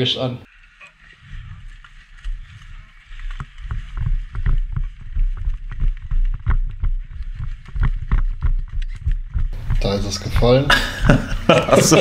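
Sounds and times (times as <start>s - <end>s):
running footsteps on mud: 1.0s - 11.5s
wind rumbling on microphone: 1.2s - 11.4s.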